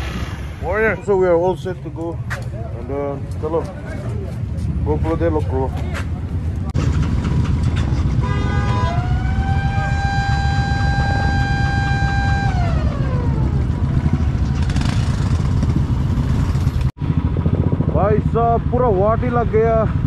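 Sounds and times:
motorcycles rumbling: 0:00.0 - 0:20.0
horn beeping: 0:08.1 - 0:14.1.

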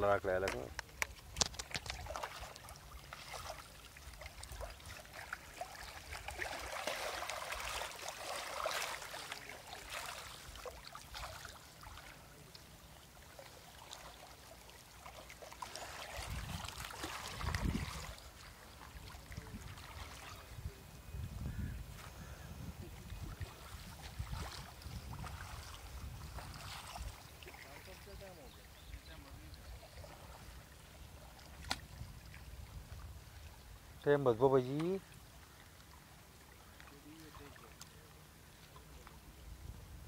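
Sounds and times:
lake waves lapping on rocks: 0:00.2 - 0:20.8, 0:22.9 - 0:39.4.

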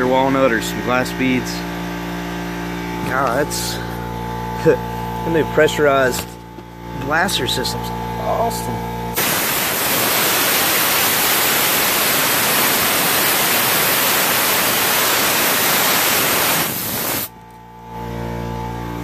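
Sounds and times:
abrasive blaster hissing: 0:09.2 - 0:17.3.

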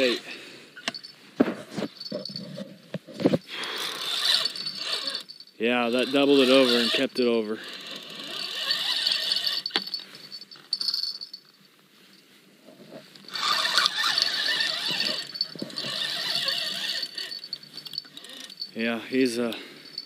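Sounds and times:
fishing reel cranking whir: 0:03.6 - 0:09.9, 0:13.3 - 0:18.8.

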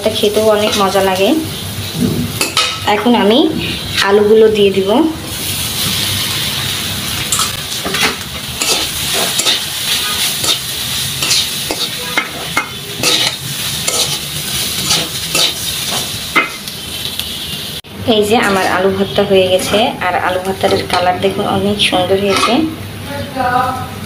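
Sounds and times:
potatoes sizzling in oil: 0:00.0 - 0:03.3, 0:04.0 - 0:23.0
metal spatula scraping and knocking pan: 0:07.3 - 0:16.7, 0:19.6 - 0:21.2, 0:22.2 - 0:22.7.

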